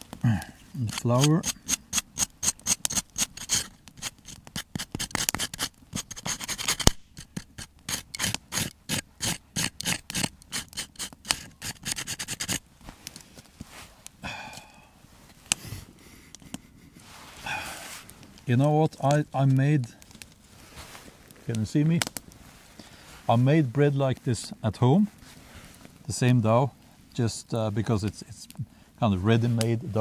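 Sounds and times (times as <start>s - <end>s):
knife scraping bread crust: 0.8s - 12.6s.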